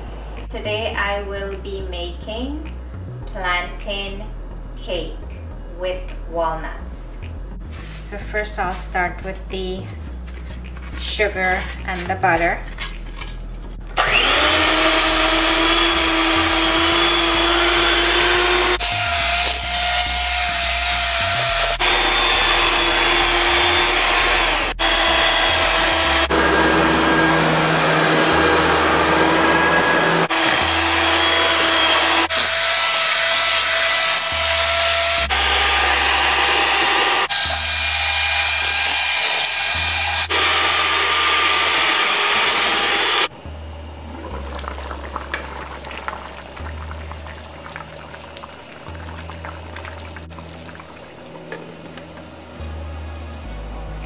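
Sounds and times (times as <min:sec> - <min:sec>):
electric hand mixer whining: 0:14.0 - 0:43.3.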